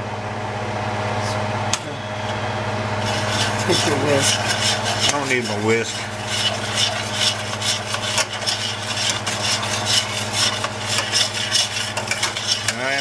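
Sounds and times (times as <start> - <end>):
steady low hum: 0.0 - 13.0
metal tongs scraping skillet: 3.0 - 13.0.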